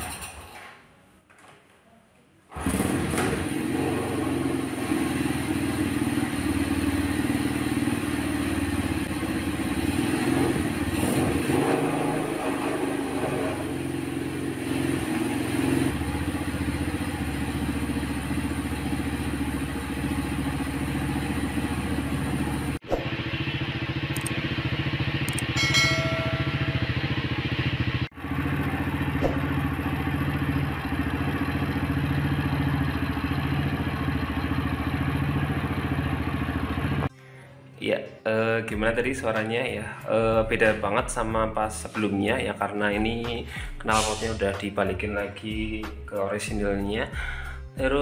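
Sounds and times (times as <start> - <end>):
motorcycle engine idling with blips: 13.6 - 37.1.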